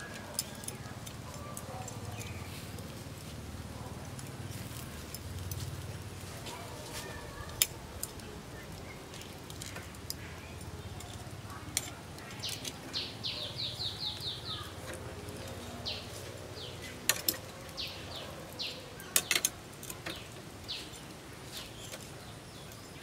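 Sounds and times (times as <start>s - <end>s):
metal tongs clicking on wire grill: 0.0s - 2.4s, 7.2s - 16.1s, 16.8s - 21.2s
bird chirping: 7.0s - 23.0s.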